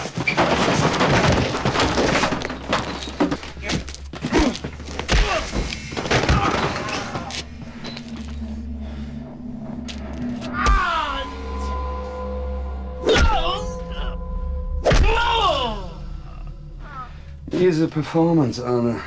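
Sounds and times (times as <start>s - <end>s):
thuds and knocks of blows: 0.0s - 7.0s
low droning score: 1.5s - 19.0s.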